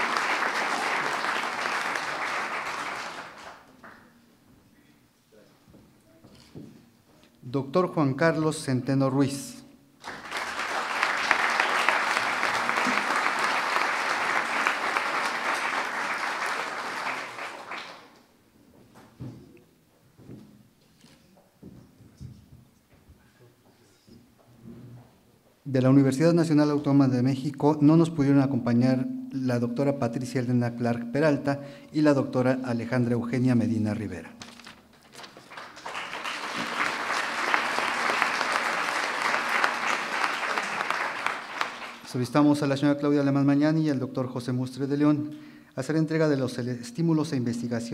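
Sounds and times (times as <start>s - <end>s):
audience applauding: 0.0s - 4.1s, 10.0s - 18.2s, 35.0s - 42.2s
crowd clapping: 0.0s - 4.2s, 10.0s - 18.3s, 34.9s - 42.3s.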